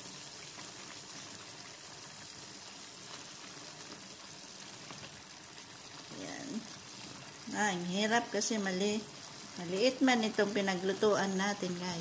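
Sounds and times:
sauce bubbling and hissing: 0:00.0 - 0:12.0
wooden spatula turning food: 0:00.2 - 0:11.8.

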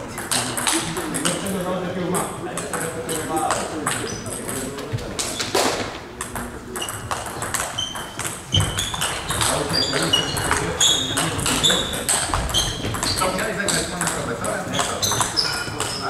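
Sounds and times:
table tennis balls struck: 0:00.0 - 0:16.0
ball bouncing pings: 0:06.2 - 0:16.0.

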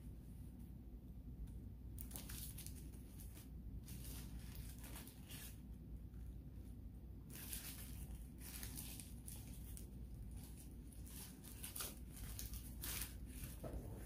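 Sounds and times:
paper wrapper crinkling: 0:02.0 - 0:05.7, 0:07.2 - 0:14.0.

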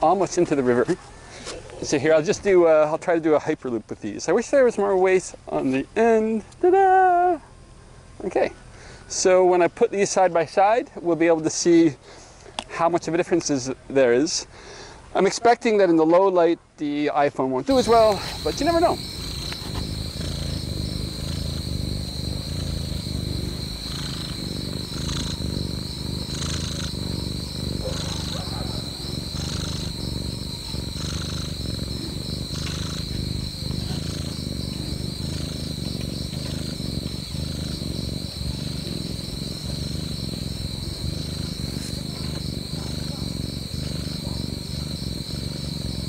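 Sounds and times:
cat purring: 0:17.7 - 0:46.0.

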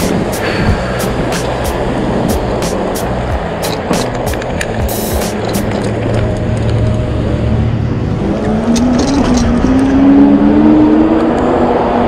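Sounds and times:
electric hub motor whining: 0:00.0 - 0:12.0
wet tyre noise: 0:00.0 - 0:12.0
wind: 0:00.0 - 0:12.0.

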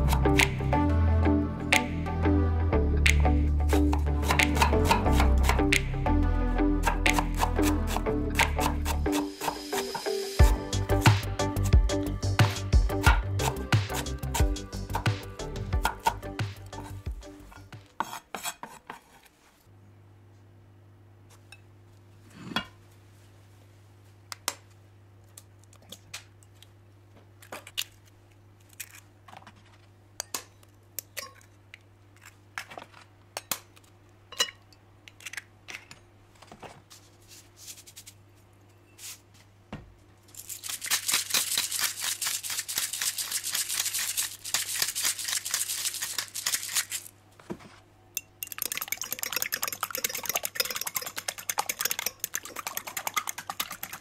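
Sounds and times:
fast knife chopping: 0:04.2 - 0:05.7, 0:06.8 - 0:10.0, 0:12.9 - 0:16.2.

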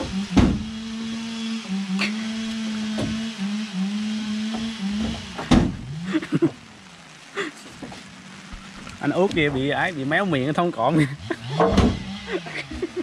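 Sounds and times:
motor drone: 0:00.0 - 0:06.4, 0:10.9 - 0:13.0.

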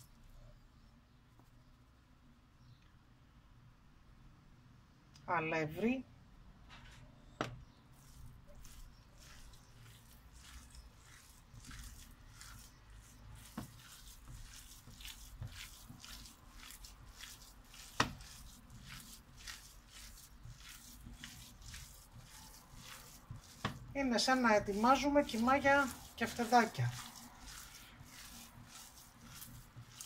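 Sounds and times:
hand squishing minced meat: 0:07.4 - 0:30.0.

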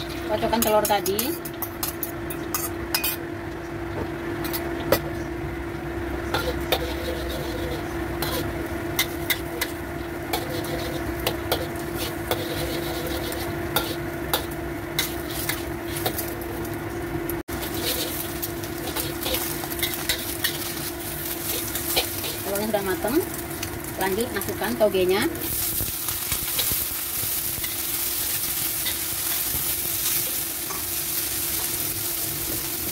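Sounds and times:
steady hum: 0:00.0 - 0:32.9
metal spatula scraping wok: 0:06.4 - 0:09.7, 0:10.3 - 0:16.3, 0:17.6 - 0:22.9
eggs sizzling in oil: 0:06.4 - 0:32.9.

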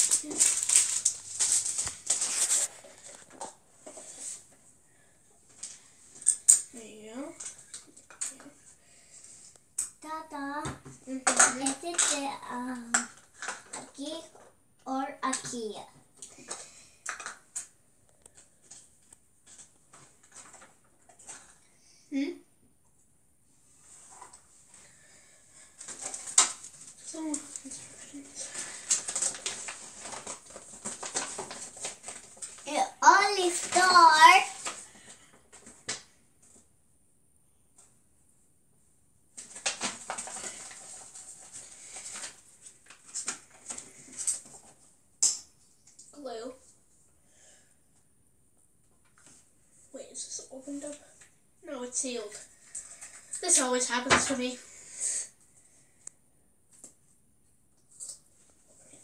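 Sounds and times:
paper leaflet rustling: 0:00.0 - 0:04.4.

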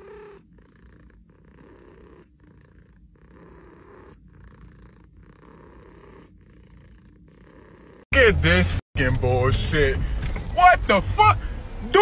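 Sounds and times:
cat purring: 0:00.0 - 0:08.1.

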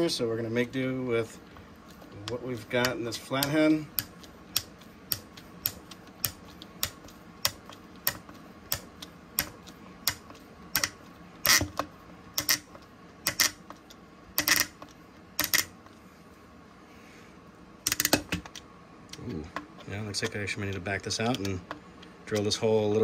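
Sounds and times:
screwdriver clicking on wood screw: 0:02.3 - 0:13.7, 0:14.4 - 0:15.7.

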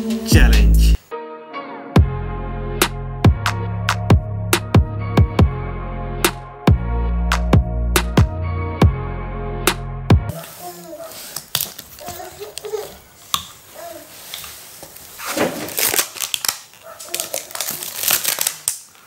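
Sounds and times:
plastic cups crinkling and tapping: 0:10.3 - 0:19.0.

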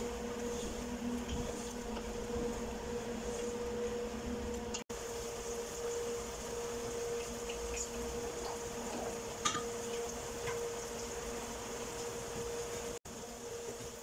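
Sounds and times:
steady hum and hiss: 0:00.0 - 0:14.0
oil sizzling in frying pan: 0:04.7 - 0:14.0.

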